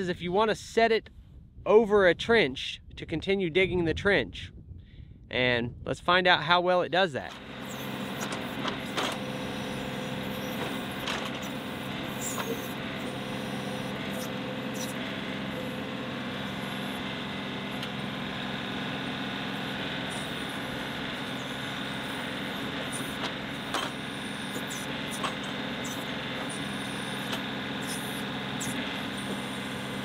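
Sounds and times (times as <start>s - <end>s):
tractor diesel engine running: 7.2s - 30.0s.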